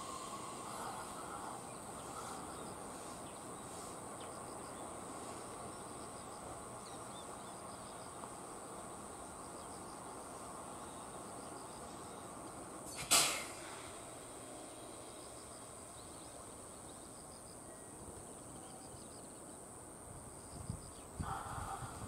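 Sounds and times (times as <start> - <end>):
insects chirping in trills: 0.0 - 22.0.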